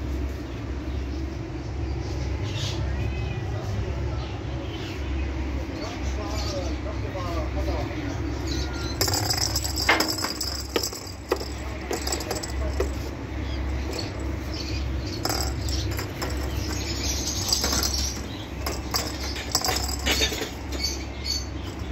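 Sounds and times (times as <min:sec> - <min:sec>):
steady low hum: 0:00.0 - 0:21.9
plastic ball knocking on stone floor: 0:08.9 - 0:14.4, 0:15.1 - 0:20.9.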